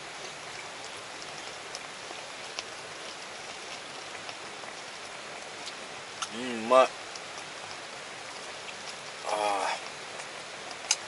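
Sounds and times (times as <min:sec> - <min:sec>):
steady background hiss: 0:00.0 - 0:11.0
faint ticks: 0:09.8 - 0:11.0.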